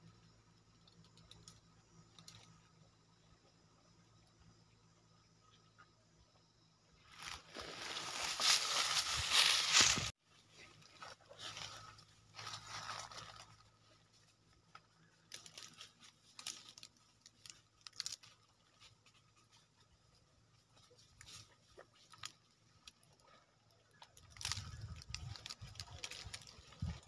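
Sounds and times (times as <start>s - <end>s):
faint clicks: 0.7s - 2.6s
short rustles: 7.2s - 10.1s.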